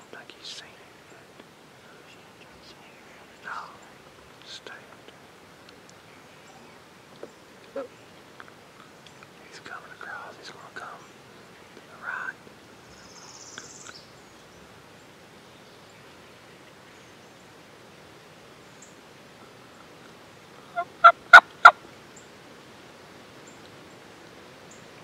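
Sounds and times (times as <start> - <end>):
turkey yelps: 20.8 - 21.8.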